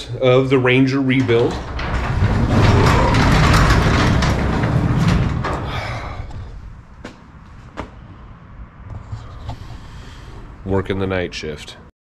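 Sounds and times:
garage door rollers rumbling: 0:00.1 - 0:07.8.

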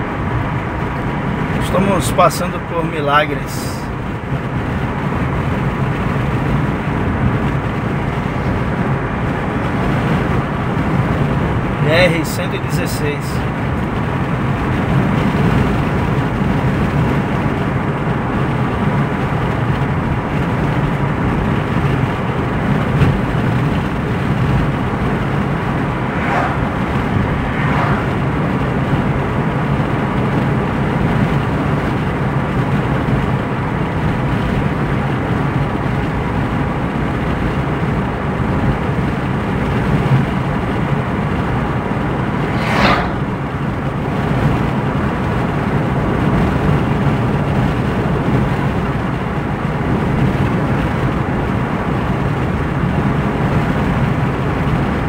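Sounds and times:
car cabin road and engine noise: 0:00.0 - 0:55.0
passing traffic whooshes: 0:23.5 - 0:30.2, 0:40.8 - 0:45.1.

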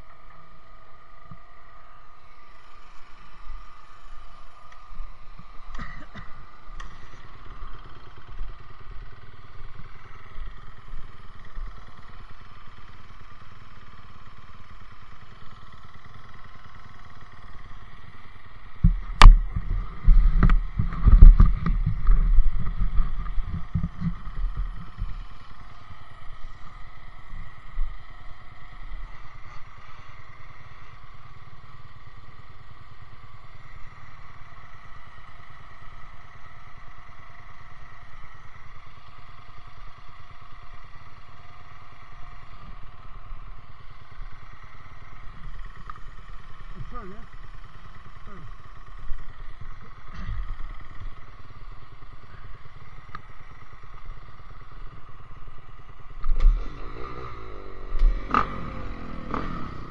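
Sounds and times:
dirt bike engines running: 0:00.0 - 0:59.9
knocks and rubbing on microphone: 0:18.8 - 0:25.2.

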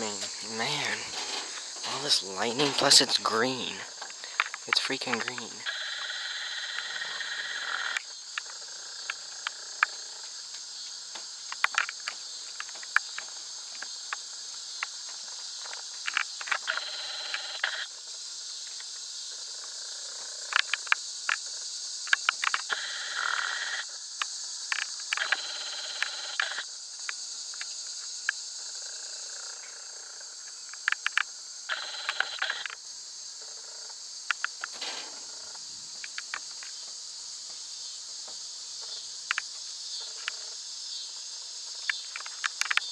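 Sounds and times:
sharp clicks: 0:00.0 - 0:05.8, 0:24.2 - 0:25.4, 0:30.7 - 0:32.8, 0:36.0 - 0:36.8
high-pitched insect chorus: 0:00.0 - 0:42.9.

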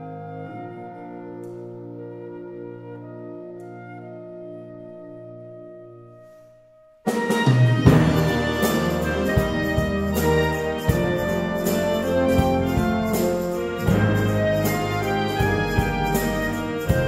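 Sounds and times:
percussion strokes: 0:07.1 - 0:17.0
saxophones and low brass chords: 0:07.1 - 0:17.0.

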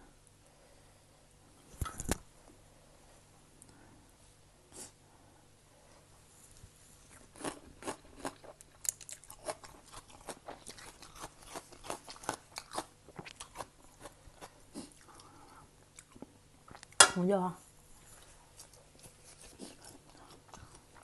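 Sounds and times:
person chewing crunchy food: 0:07.0 - 0:17.0, 0:18.1 - 0:21.0.

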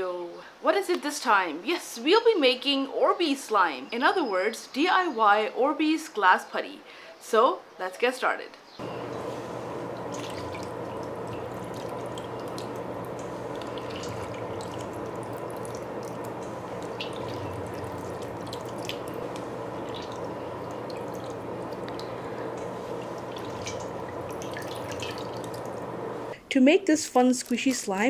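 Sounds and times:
steady hum: 0:08.8 - 0:26.4
small drips and clicks: 0:09.8 - 0:26.4
water beads pattering into bowl: 0:09.9 - 0:25.9.

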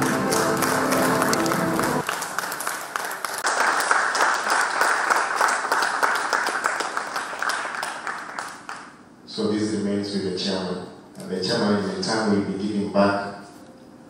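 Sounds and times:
music with held notes: 0:00.0 - 0:02.0
audience applause: 0:00.0 - 0:09.0.

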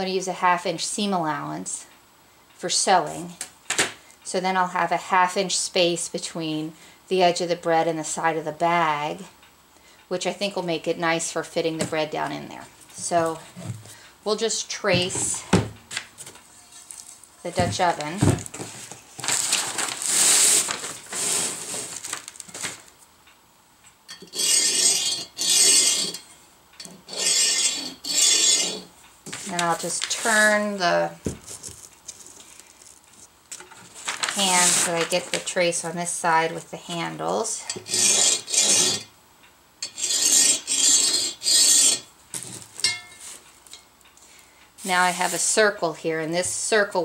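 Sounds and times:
paper rustling: 0:16.2 - 0:22.9, 0:29.3 - 0:30.6, 0:31.2 - 0:35.6, 0:44.8 - 0:45.6
pencil scratching on paper: 0:27.1 - 0:28.9.

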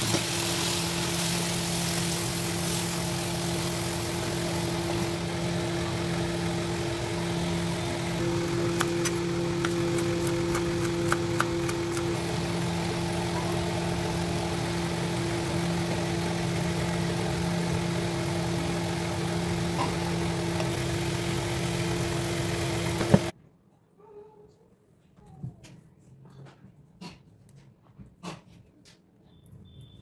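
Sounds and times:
motor hum: 0:00.0 - 0:23.3.

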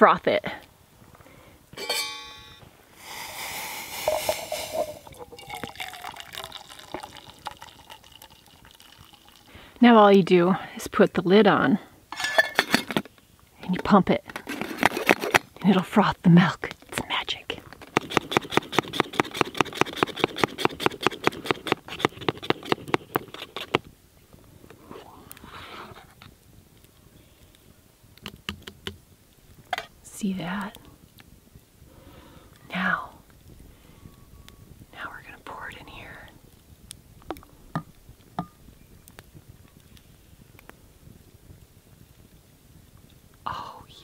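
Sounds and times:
milk pouring into metal pitcher: 0:04.0 - 0:09.4.

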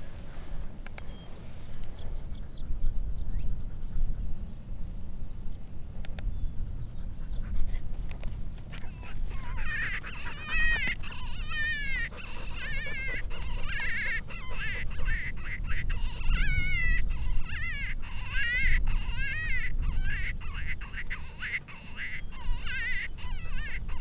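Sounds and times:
coyotes yipping and howling: 0:06.4 - 0:24.0.

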